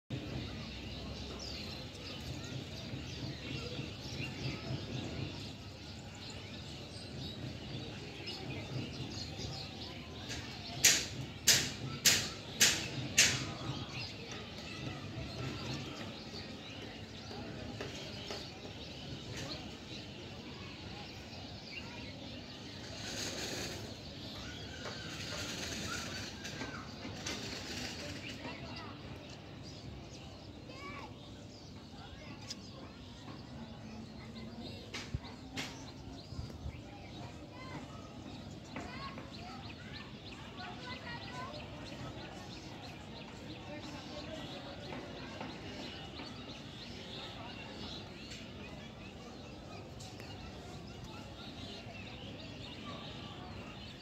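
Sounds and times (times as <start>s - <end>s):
birds chirping: 0.1s - 54.0s.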